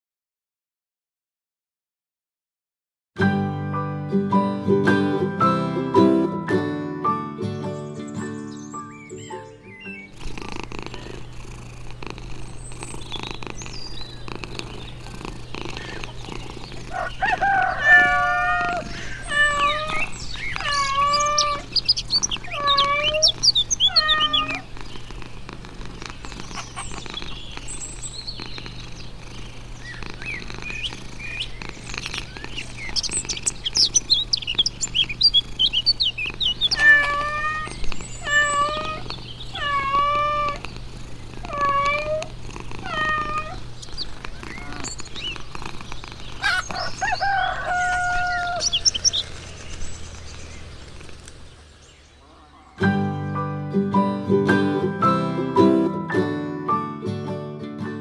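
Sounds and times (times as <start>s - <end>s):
steady low hum: 10.1s - 52.6s
high thin squeaky cries: 16.9s - 21.7s, 22.5s - 24.6s, 36.6s - 40.6s
cat meowing: 17.4s - 21.8s, 22.4s - 24.6s, 36.6s - 40.6s, 41.4s - 43.6s, 44.4s - 44.9s, 47.7s - 48.7s.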